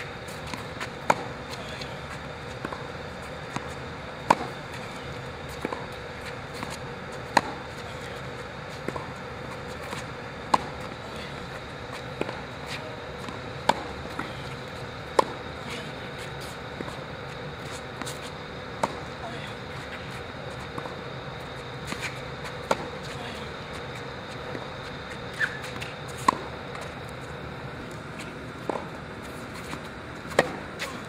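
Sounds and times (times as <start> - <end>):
tennis racket hitting ball: 0.3 - 2.9, 3.5 - 8.2, 8.8 - 17.0, 21.8 - 23.5, 29.5 - 31.0.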